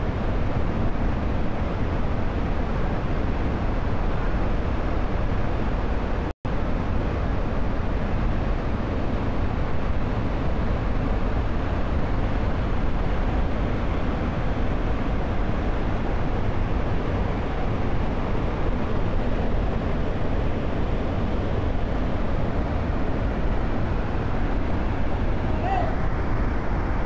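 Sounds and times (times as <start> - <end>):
waterfall roaring: 10.4 - 27.0.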